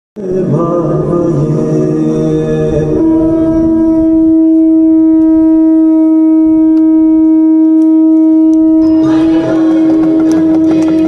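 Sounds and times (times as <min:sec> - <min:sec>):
noisy background: 0:00.2 - 0:11.0
conch shell blown: 0:03.3 - 0:11.0.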